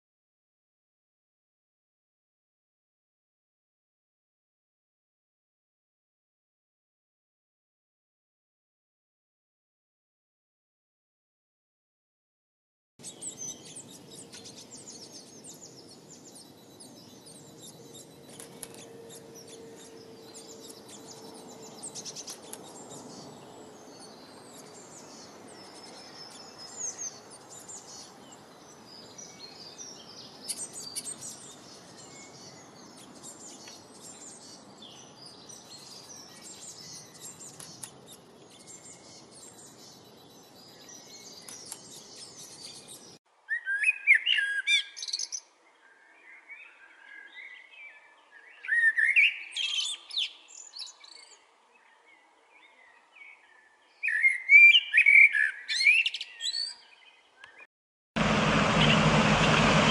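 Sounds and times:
blackbird whistled song: 0:13.0 - 0:52.0, 0:52.6 - 0:57.6, 0:58.8 - 0:59.9
songbirds twittering: 0:13.0 - 0:59.9.

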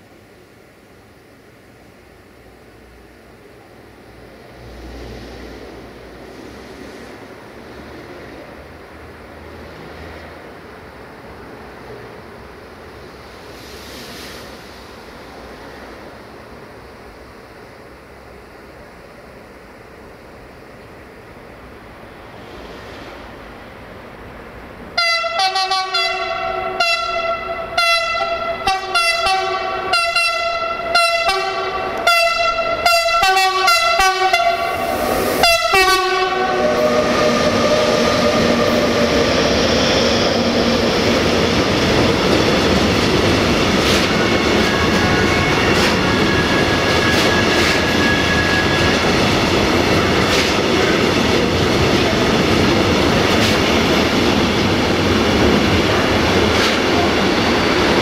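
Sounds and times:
train wheels rumbling on rails: 0:04.1 - 0:58.0
train horn short blasts: 0:25.0 - 0:37.0.

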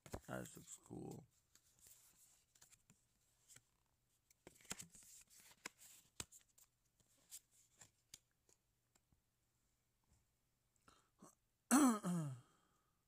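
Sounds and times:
trading cards clicking and rustling: 0:04.3 - 0:06.5.

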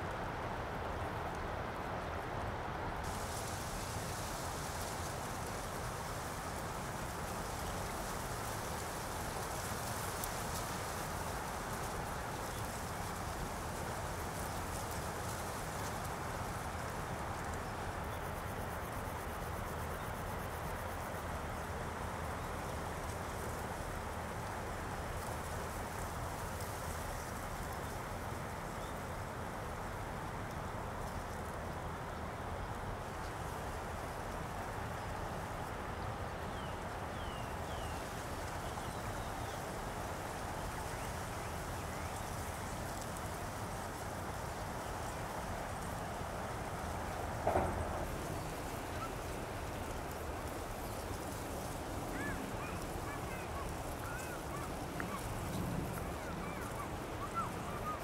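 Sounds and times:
outdoor ambient hiss: 0:00.0 - 0:58.0.

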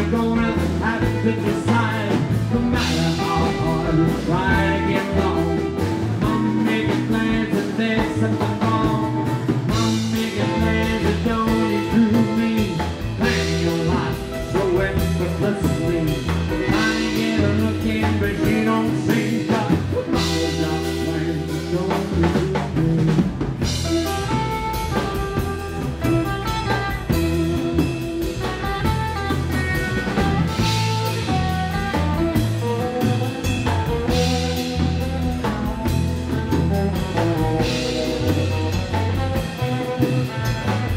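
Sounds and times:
rockabilly band playing: 0:00.0 - 0:40.9.

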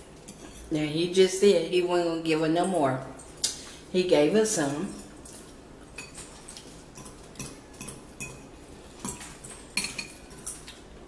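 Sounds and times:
metal forks clinking on bowls: 0:00.2 - 0:00.8, 0:04.6 - 0:10.8.

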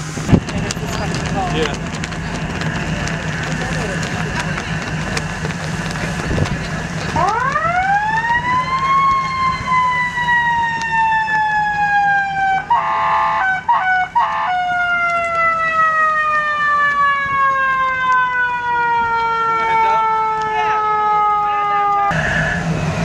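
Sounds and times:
boat siren winding: 0:06.9 - 0:11.9
flat horn blasts: 0:12.7 - 0:14.7.

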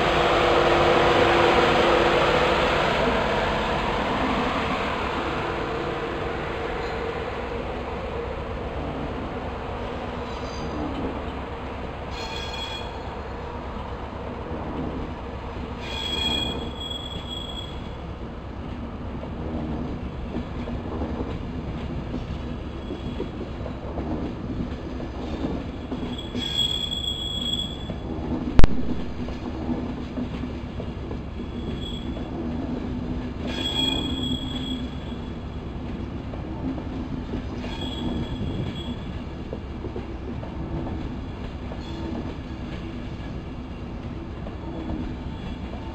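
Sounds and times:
train coaches rumbling: 0:00.0 - 0:45.9
wheels squealing: 0:15.8 - 0:17.9, 0:25.9 - 0:27.9, 0:31.5 - 0:32.2, 0:33.5 - 0:35.2, 0:37.6 - 0:39.1
sharp knock: 0:28.6 - 0:29.2.

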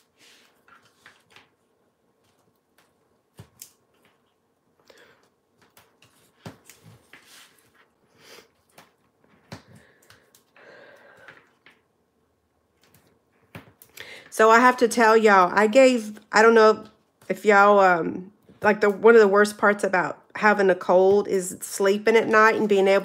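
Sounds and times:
paper folding and rustling: 0:00.0 - 0:03.0.

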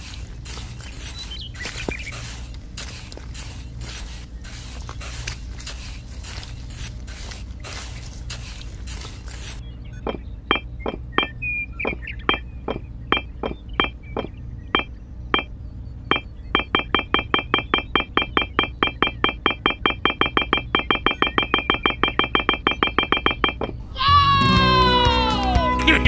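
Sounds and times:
wet mortar scraping: 0:00.0 - 0:09.6
electronic blips: 0:00.0 - 0:23.8
steady low hum: 0:00.0 - 0:24.0.

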